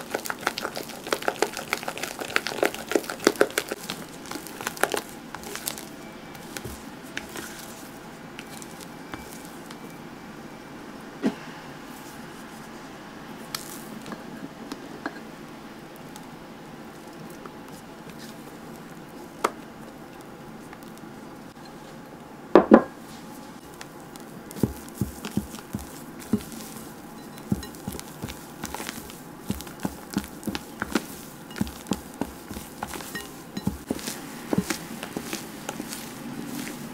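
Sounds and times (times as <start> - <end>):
batter squishing: 0.0 - 10.0, 11.9 - 15.2, 15.8 - 21.6, 23.1 - 36.9
spatula scraping glass bowl: 24.9 - 36.9.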